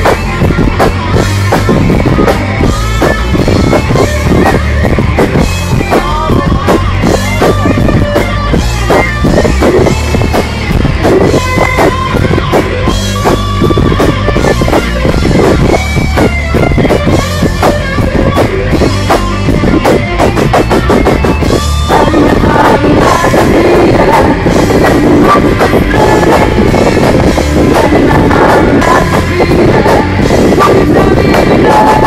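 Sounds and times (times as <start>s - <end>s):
drum kit: 0.0s - 32.0s
electric guitars: 0.0s - 32.0s
woman singing: 5.9s - 7.5s, 21.9s - 32.0s.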